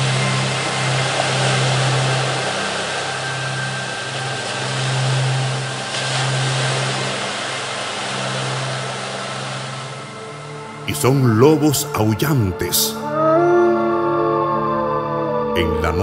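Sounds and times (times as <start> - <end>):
steady rushing noise: 0.0 - 10.9
low sustained music drone: 0.0 - 16.0.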